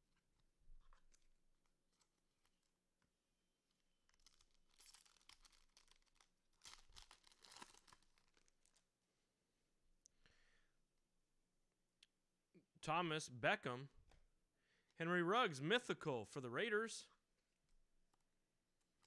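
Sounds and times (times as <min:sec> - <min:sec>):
wrapper tearing and crinkling: 0:00.8 - 0:02.8, 0:03.7 - 0:08.9.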